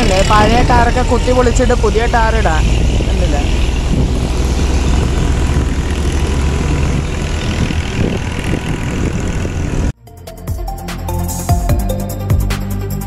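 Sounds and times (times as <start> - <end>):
car engine and road rumble: 0.0 - 10.0
background music: 10.0 - 13.0.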